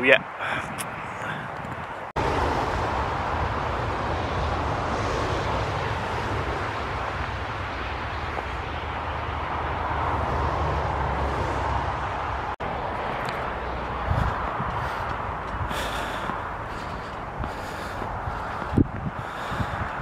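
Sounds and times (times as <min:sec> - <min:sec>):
wind on microphone: 0:00.0 - 0:20.0.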